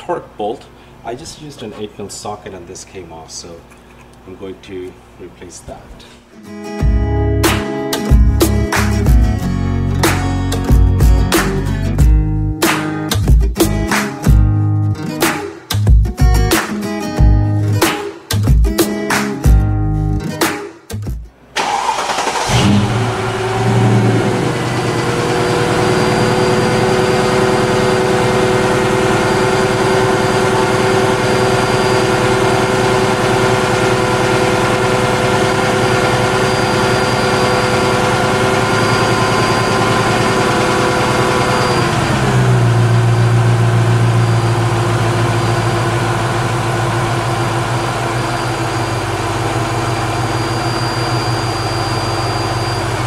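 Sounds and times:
car engine idling: 21.6s - 53.0s.

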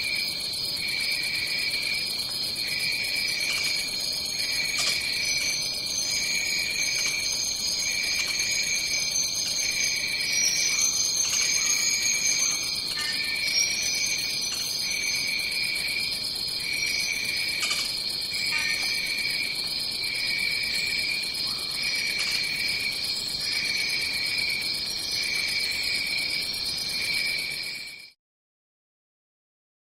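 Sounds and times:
high-pitched insect chorus: 0.0s - 28.2s
pulsing low insect trill: 0.0s - 28.2s.

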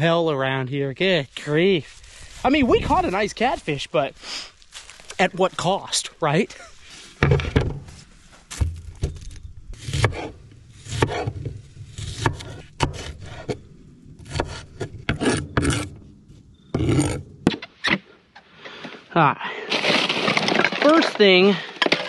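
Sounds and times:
blade scraping across board: 9.7s - 16.1s, 16.7s - 18.0s.

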